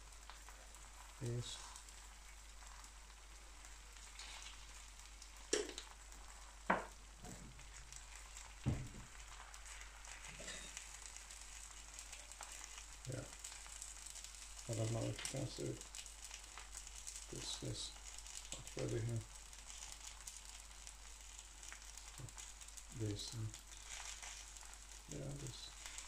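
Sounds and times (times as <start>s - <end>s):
eggs sizzling on griddle: 0.0s - 26.0s
dull knock: 8.7s - 9.1s.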